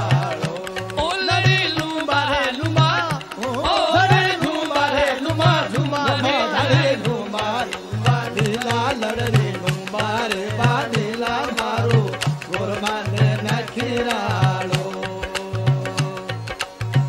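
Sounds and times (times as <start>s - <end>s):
steady drum beat: 0.0s - 15.0s.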